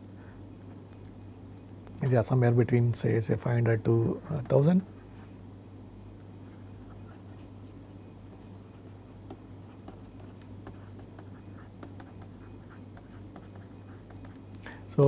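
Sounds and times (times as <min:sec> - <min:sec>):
low electrical hum: 0:00.0 - 0:15.0
stylus tapping on tablet screen: 0:09.2 - 0:14.5.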